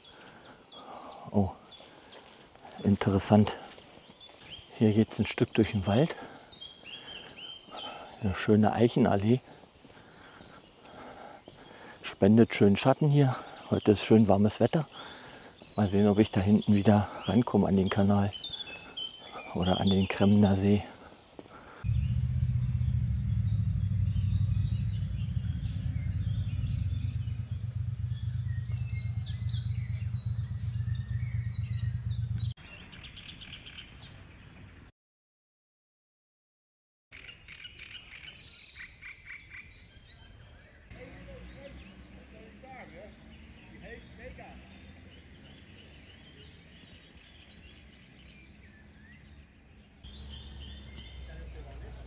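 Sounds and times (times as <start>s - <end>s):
songbirds chirping and trilling: 0.0s - 34.9s, 37.1s - 52.0s
steady low rumble: 21.8s - 32.6s.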